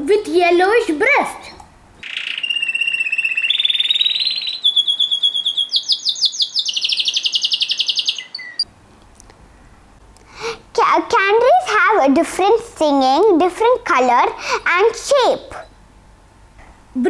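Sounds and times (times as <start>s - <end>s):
canary singing trills: 1.4s - 8.7s.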